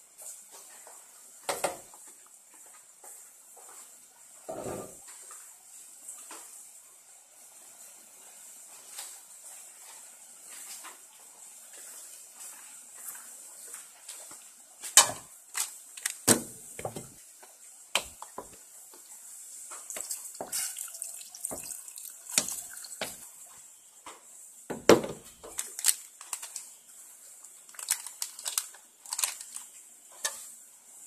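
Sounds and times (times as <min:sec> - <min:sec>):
steady hiss: 0:00.0 - 0:31.0
curry bubbling in a pot: 0:16.7 - 0:23.5
pops and crackles: 0:25.4 - 0:26.7, 0:27.7 - 0:29.7.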